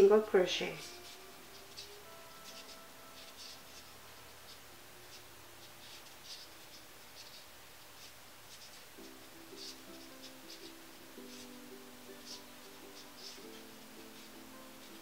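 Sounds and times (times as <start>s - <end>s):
crochet hook scratchy ticks: 4.5s - 15.0s.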